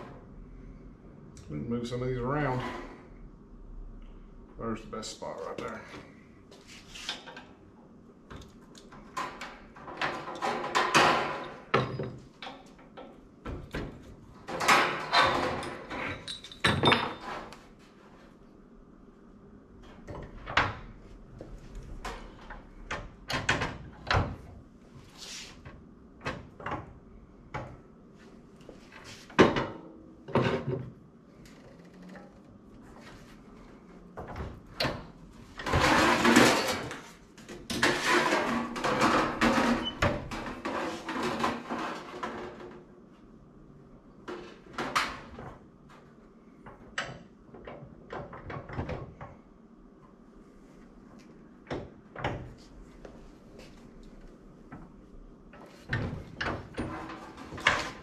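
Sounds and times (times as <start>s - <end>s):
metal clanks and knocks: 9.0s - 17.5s, 34.2s - 42.8s
sheet metal clattering: 37.8s - 42.6s.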